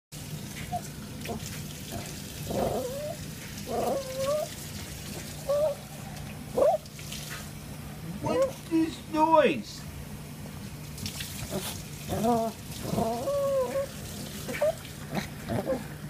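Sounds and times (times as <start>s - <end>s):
small dog whining: 2.5s - 4.6s, 5.4s - 6.8s, 8.0s - 8.6s, 11.5s - 16.0s.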